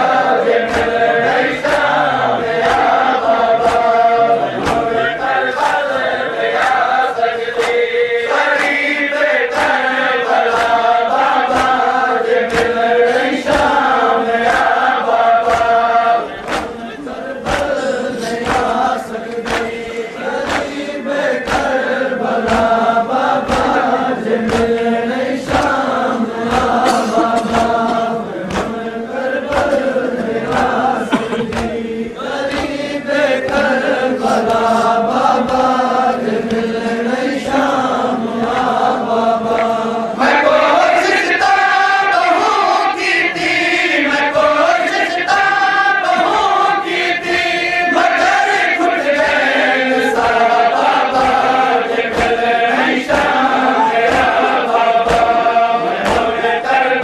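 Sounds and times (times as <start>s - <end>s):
men chanting in unison: 0.0s - 57.0s
rhythmic chest-beating: 0.0s - 57.0s.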